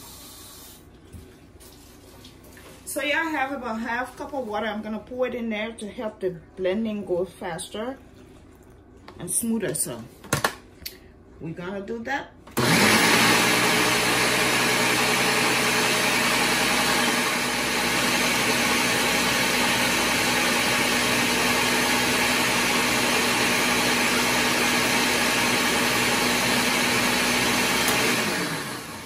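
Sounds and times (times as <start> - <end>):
blender motor running: 12.6 - 29.0.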